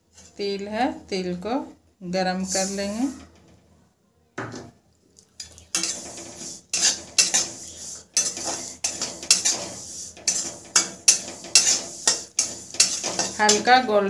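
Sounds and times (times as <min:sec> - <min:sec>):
spatula scraping metal pan: 0:02.4 - 0:03.2, 0:05.7 - 0:14.0.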